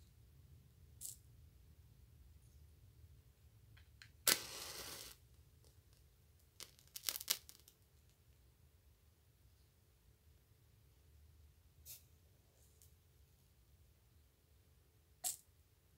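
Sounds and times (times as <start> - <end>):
match flaring hiss: 4.2 - 5.2, 6.6 - 7.7
match struck on matchbox: 4.3 - 5.2, 6.6 - 7.8
sharp crackles: 4.3 - 5.2, 6.6 - 7.8.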